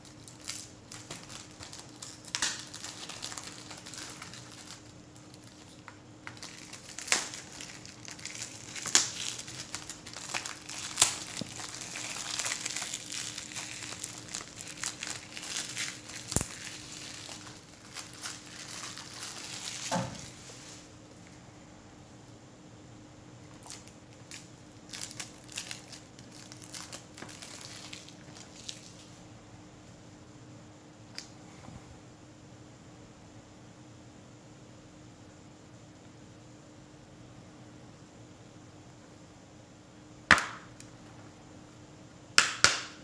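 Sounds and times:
plastic shrink-wrap crinkling: 0.0s - 20.9s, 23.5s - 29.2s.

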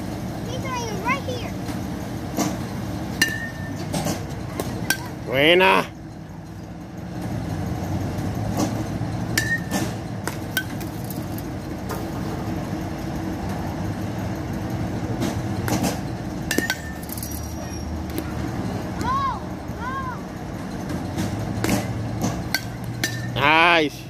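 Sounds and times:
steady low hum: 0.0s - 24.0s
bat cracking on ball: 9.4s - 12.5s.

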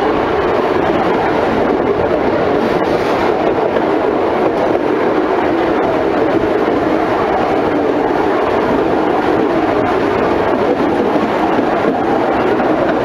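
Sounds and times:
train wheels running on rails: 0.0s - 13.0s.

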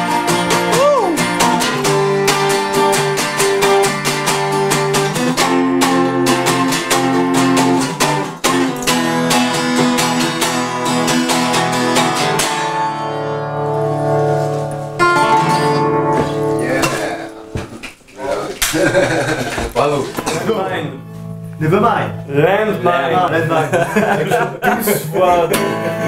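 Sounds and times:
acoustic guitars strumming: 0.0s - 26.0s.

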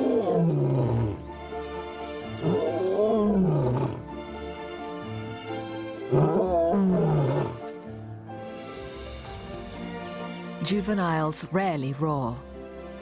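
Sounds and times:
young lion roaring: 0.0s - 1.3s, 2.3s - 4.1s, 6.0s - 7.7s
background music: 0.0s - 13.0s.

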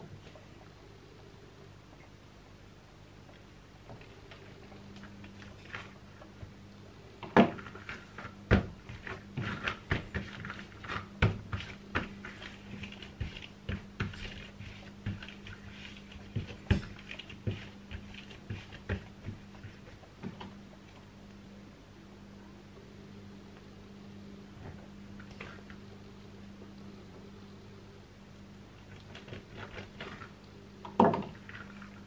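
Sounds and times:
steady low hum: 0.0s - 32.0s
dough knocks and squishes: 7.2s - 20.6s.

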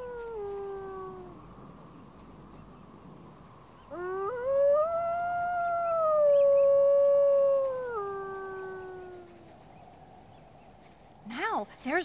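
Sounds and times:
wolf howling: 0.0s - 1.4s, 3.8s - 9.6s.

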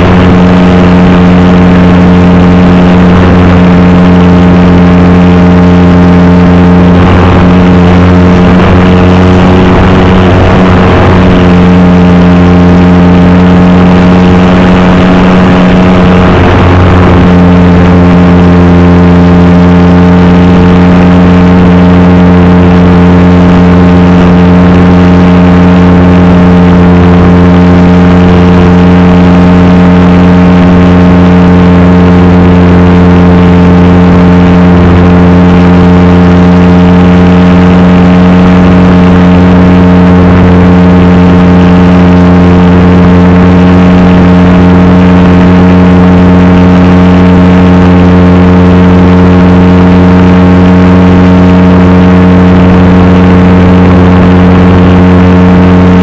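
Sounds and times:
model plane engine droning: 0.0s - 56.0s.

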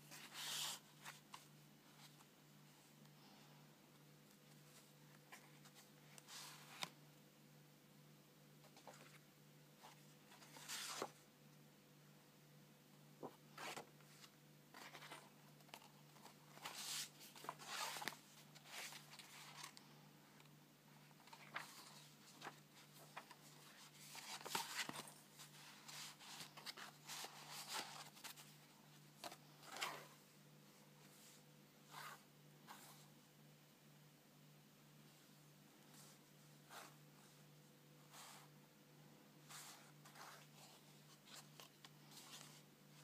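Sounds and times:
faint low hum: 0.0s - 43.0s
paper pages rustling: 8.6s - 9.2s, 9.8s - 11.2s, 13.2s - 30.2s, 39.5s - 43.0s.

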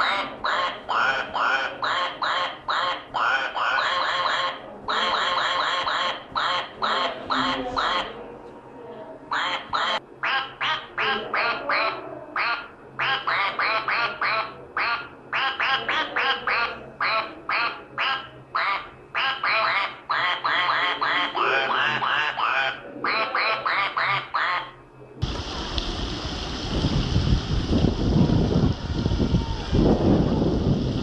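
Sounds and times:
person imitating duck quacks: 0.0s - 8.2s, 9.3s - 24.8s.

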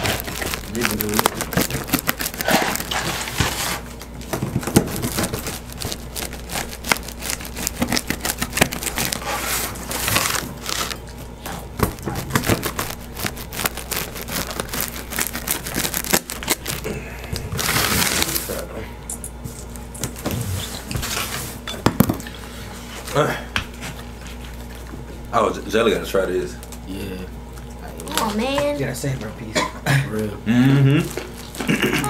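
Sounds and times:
wheel cutter slicing pizza: 0.0s - 11.0s
pizza crust chewing and crunching: 0.0s - 18.7s, 22.3s - 25.3s, 30.7s - 32.0s.

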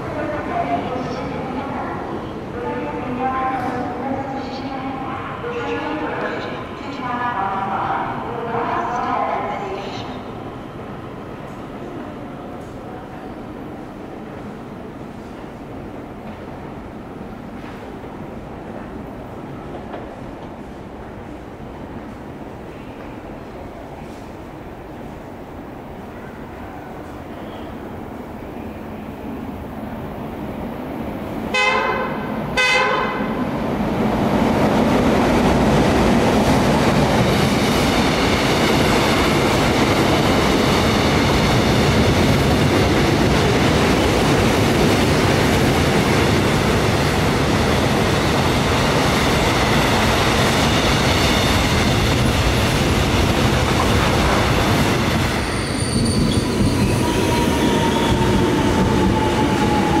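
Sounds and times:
train wheels rumbling on rail: 11.3s - 25.2s, 30.4s - 60.0s
locomotive horn blasts: 31.6s - 33.3s.

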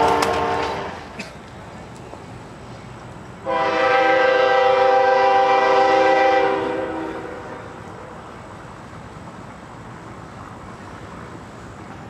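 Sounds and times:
locomotive air horn blast: 0.0s - 1.2s, 3.4s - 8.1s.

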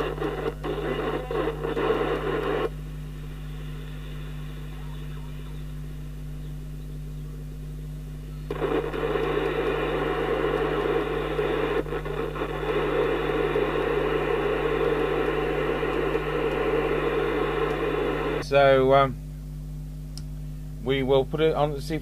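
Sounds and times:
radio static and interference: 0.0s - 6.7s, 8.5s - 18.7s.

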